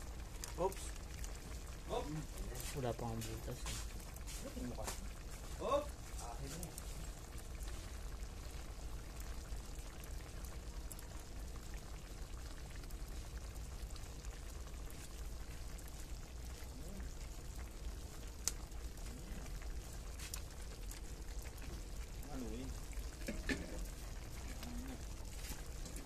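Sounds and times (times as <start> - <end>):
liquid trickling into sauce: 0.0 - 26.0
sauce simmering in a pan: 0.0 - 26.0.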